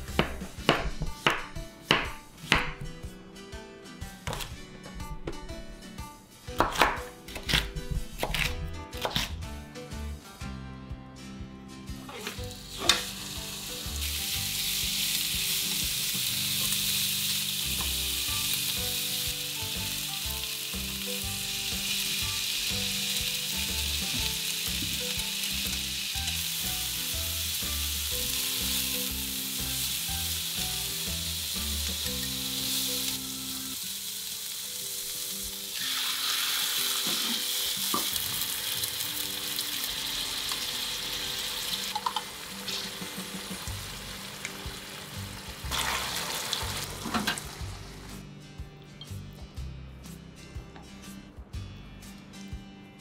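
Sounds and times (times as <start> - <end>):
meat and vegetables sizzling in pan: 12.1 - 48.2.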